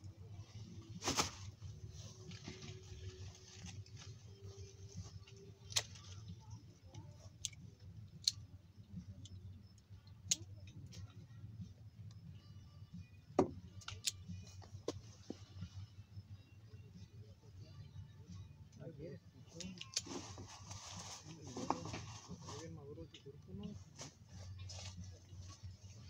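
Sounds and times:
grape bunches rustling: 0.0 - 6.8, 19.6 - 22.9, 23.6 - 26.0.

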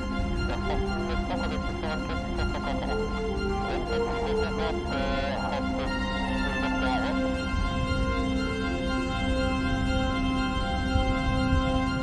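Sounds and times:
slow sustained chords: 0.0 - 12.0.

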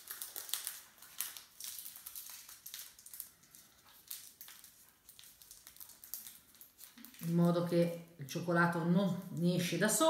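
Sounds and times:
paper crinkling and rustling: 0.0 - 7.6.

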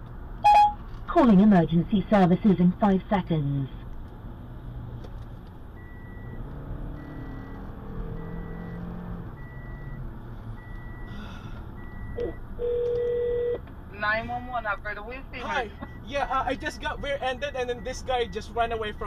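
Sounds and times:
car road noise: 0.0 - 19.0
low steady phone tone: 0.4 - 0.8, 11.8 - 13.6
short high phone beeps: 0.4 - 0.8, 12.2 - 13.6.

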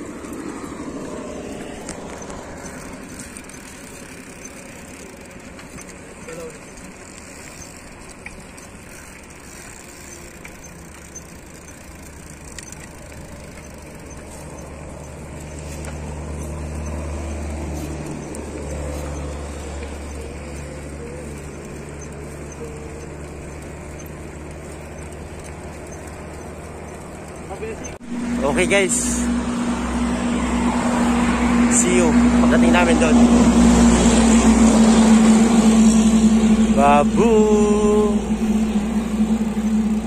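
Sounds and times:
road noise: 0.0 - 40.0
deep low rumble: 32.2 - 40.0.

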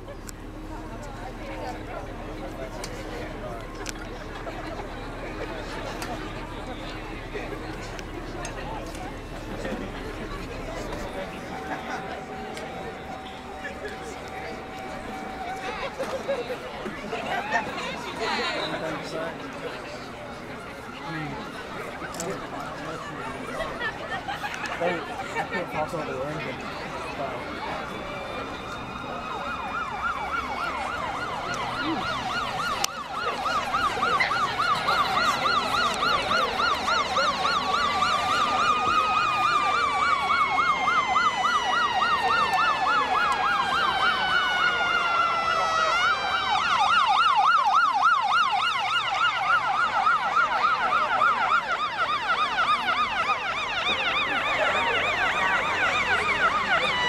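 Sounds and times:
siren wail: 0.0 - 57.0
siren yelp: 0.0 - 57.0.

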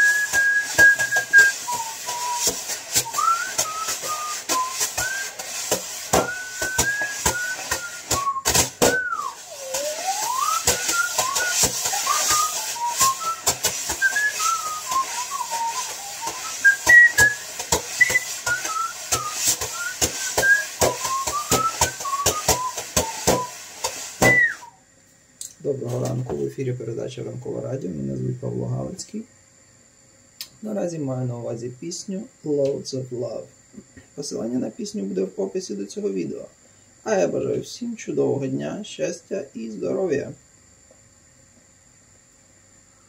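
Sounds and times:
person whistling a melody: 0.0 - 23.6, 24.2 - 24.8.

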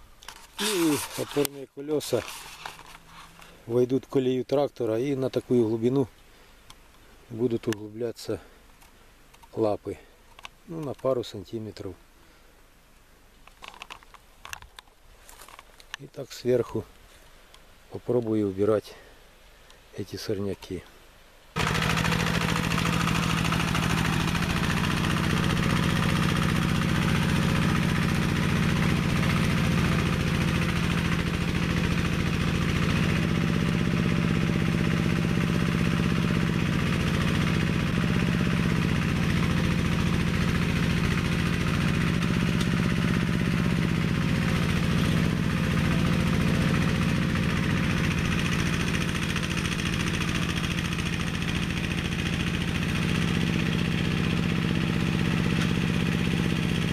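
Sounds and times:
tractor engine running under load: 0.6 - 3.6, 21.6 - 56.9.

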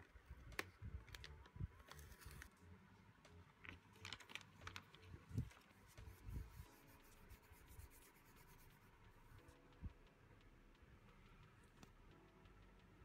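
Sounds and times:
plastic sleeve crinkling: 0.3 - 2.5, 3.6 - 6.0.

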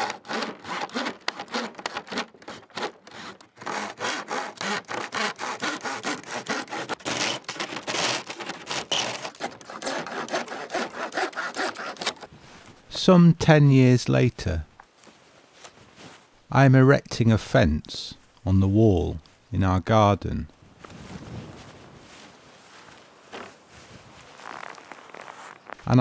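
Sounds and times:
handsaw cutting wood: 0.0 - 12.3.

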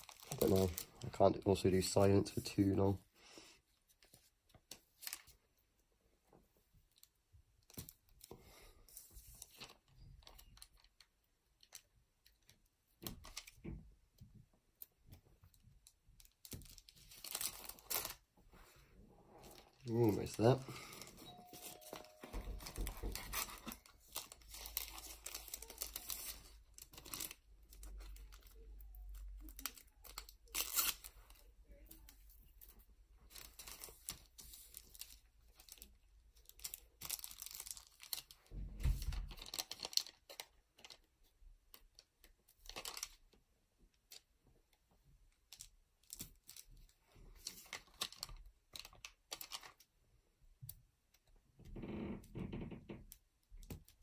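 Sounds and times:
plastic bag crinkling: 0.0 - 2.7, 16.2 - 18.2, 19.4 - 31.9, 33.3 - 41.1, 42.6 - 43.2, 45.5 - 49.9.

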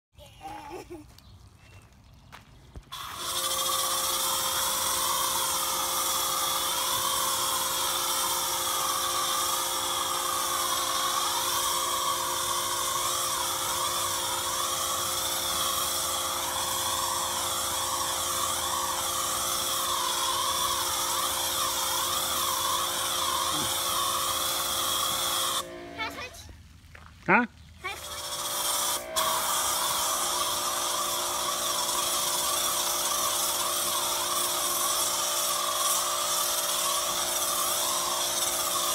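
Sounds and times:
pressure washer motor whine: 2.9 - 26.4, 27.9 - 38.9
hiss of spray: 3.0 - 26.3, 27.9 - 38.9.

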